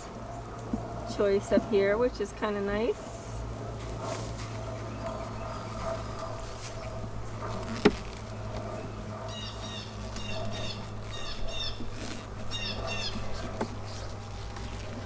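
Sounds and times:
honeybees humming: 0:00.0 - 0:15.0
songbird chirping: 0:04.4 - 0:07.6.

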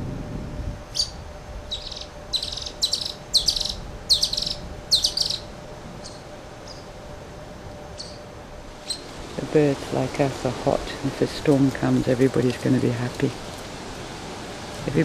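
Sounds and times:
kingfishers chattering calls: 0:01.0 - 0:06.9, 0:08.8 - 0:09.1.

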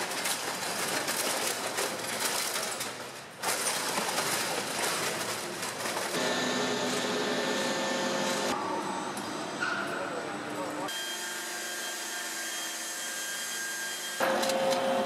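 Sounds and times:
metal and plastic crunching: 0:00.0 - 0:06.3
machine hum with whine: 0:06.2 - 0:09.6.

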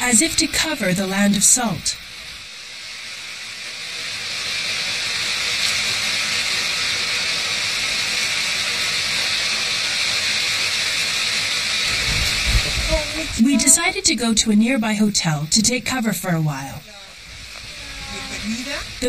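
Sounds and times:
rain falling on puddles: 0:02.0 - 0:14.2, 0:16.5 - 0:19.0.

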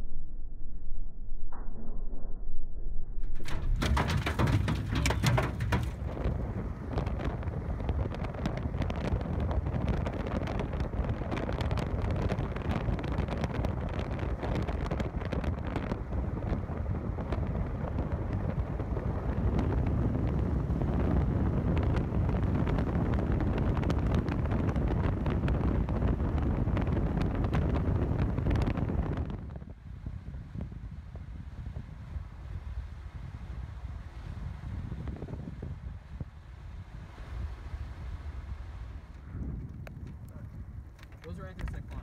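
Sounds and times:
wind buffeting microphone: 0:03.4 - 0:42.0
vehicle road noise: 0:03.5 - 0:12.8.

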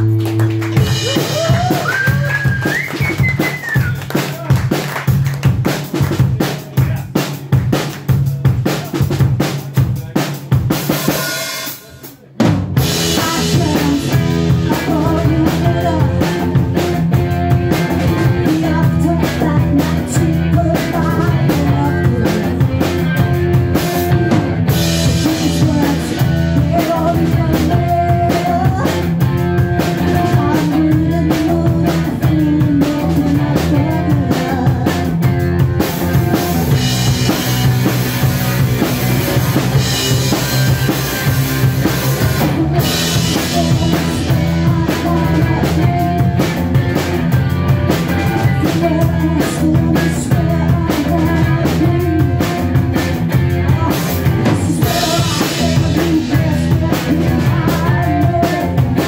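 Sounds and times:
electric guitar: 0:00.0 - 0:09.4, 0:12.8 - 0:59.0
bass guitar: 0:00.0 - 0:59.0
drum kit: 0:00.0 - 0:59.0
woman singing: 0:12.9 - 0:23.2, 0:24.8 - 0:35.4, 0:42.2 - 0:47.0, 0:48.1 - 0:59.0.

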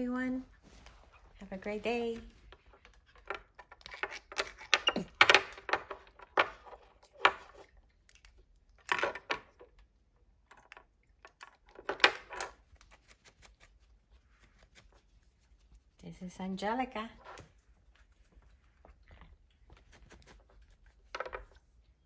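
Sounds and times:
plastic clicks and rattles: 0:10.4 - 0:12.6.

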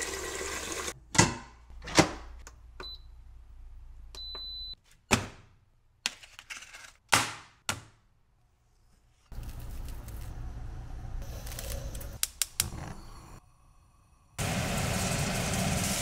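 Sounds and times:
appliance electronic beep: 0:04.2 - 0:04.8.

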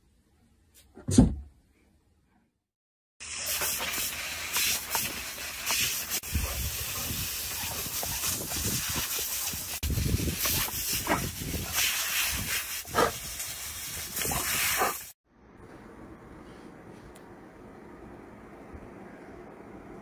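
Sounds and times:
hose nozzle spray hissing: 0:03.2 - 0:15.2.

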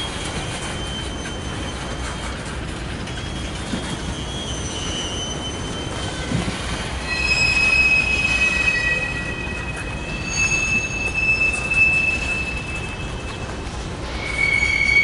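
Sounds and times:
train rumble: 0:00.0 - 0:15.0
wheels squealing on rails: 0:00.0 - 0:15.0.

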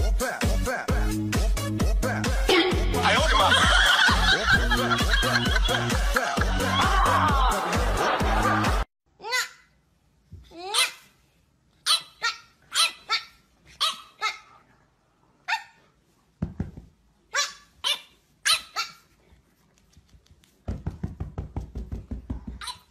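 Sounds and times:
puppy yapping barks: 0:11.8 - 0:14.5, 0:17.3 - 0:19.1.

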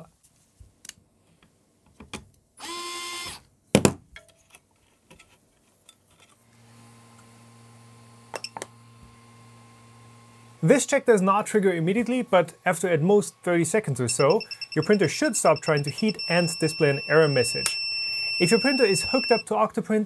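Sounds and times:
electric screwdriver whirring: 0:02.6 - 0:03.4.

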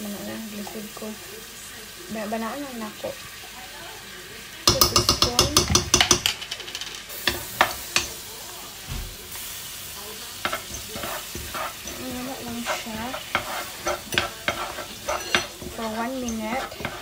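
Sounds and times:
noodles sizzling in a wok: 0:00.0 - 0:17.0
utensil knocking against pan: 0:04.7 - 0:06.5, 0:10.4 - 0:17.0.

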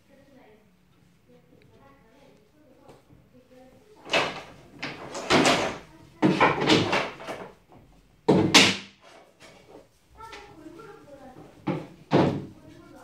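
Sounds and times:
wooden boards knocking and scraping: 0:04.0 - 0:07.6, 0:08.3 - 0:09.8, 0:11.6 - 0:12.5.

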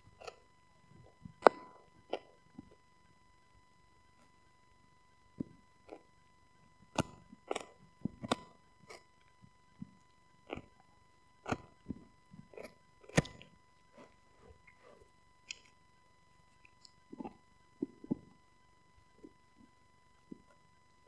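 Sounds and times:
teeth crunching on hard chew: 0:07.0 - 0:09.1, 0:11.4 - 0:14.8, 0:15.4 - 0:15.8.

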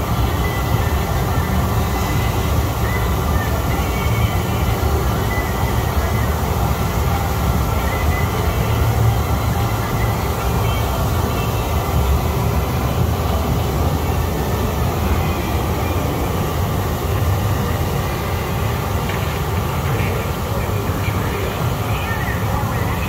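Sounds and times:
spa jets bubbling water: 0:00.0 - 0:23.0.

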